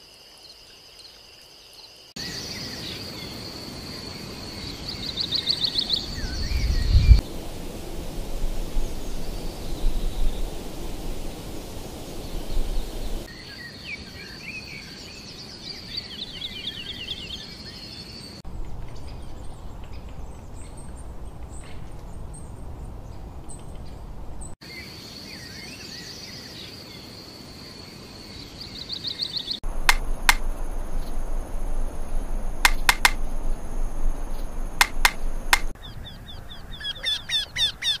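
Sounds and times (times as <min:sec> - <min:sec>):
sharp clicking bird calls: 0:18.6 - 0:24.0, 0:29.5 - 0:35.8
fast repeated bird call notes: 0:29.6 - 0:35.7.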